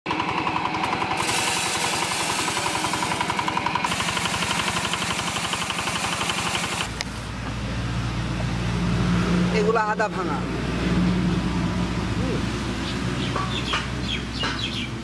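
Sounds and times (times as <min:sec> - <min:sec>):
crusher grinding dry corn: 0:00.1 - 0:07.2
diesel engine chugging: 0:00.1 - 0:10.6.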